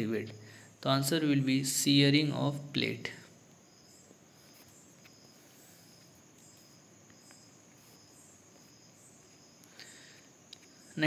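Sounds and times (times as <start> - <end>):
faint high chirp: 3.6 - 11.0.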